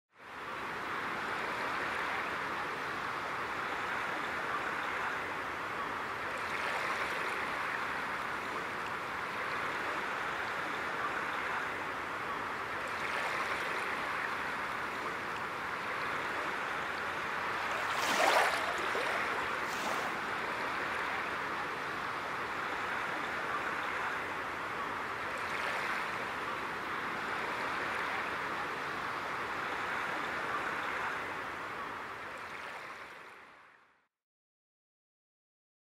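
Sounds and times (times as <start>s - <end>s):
water splash: 17.5s - 20.3s
water washing: 17.5s - 20.3s.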